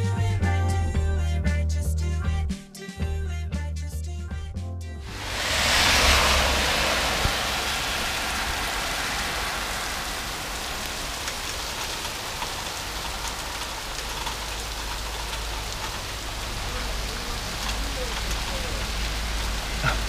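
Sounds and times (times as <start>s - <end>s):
light rain hiss: 5.1s - 20.0s
raindrops ticking: 5.4s - 20.0s.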